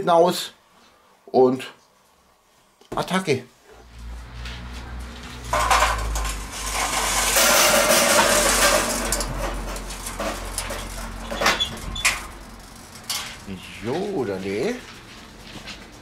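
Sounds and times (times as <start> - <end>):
charcoal clattering onto metal grate: 4.9 - 13.5.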